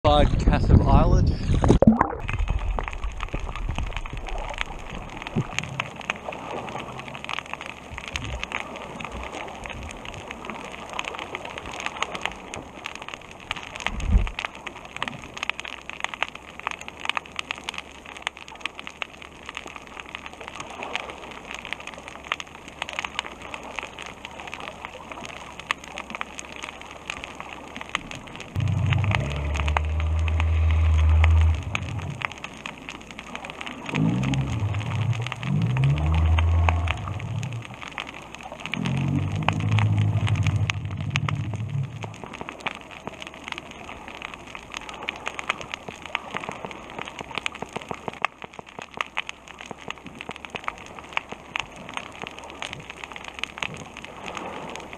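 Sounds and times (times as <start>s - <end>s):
snapping shrimp crackle: 2.3s - 54.9s
low hum: 28.4s - 32.7s, 33.8s - 38.0s, 38.7s - 42.4s.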